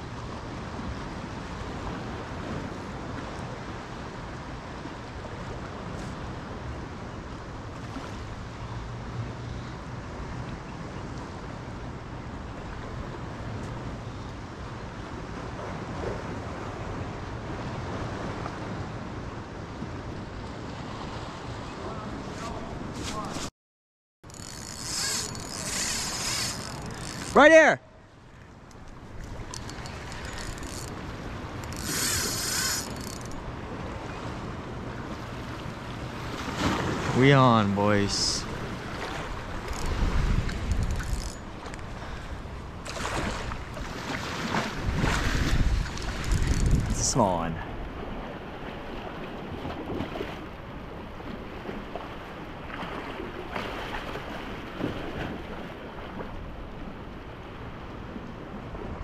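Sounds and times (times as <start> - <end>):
sea water gently lapping: 0.0 - 23.5, 24.3 - 59.0
fishing reel clicking: 24.3 - 27.4, 28.8 - 31.0, 31.6 - 33.4, 39.6 - 41.8, 46.0 - 46.9
line rushing hiss: 31.7 - 33.2
wind on microphone: 38.4 - 48.3.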